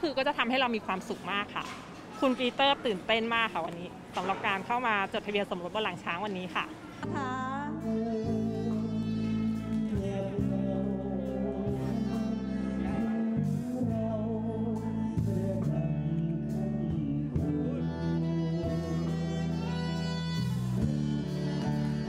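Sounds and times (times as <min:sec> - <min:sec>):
held bass notes and chords: 0:07.0 - 0:22.0
person singing: 0:07.0 - 0:22.0.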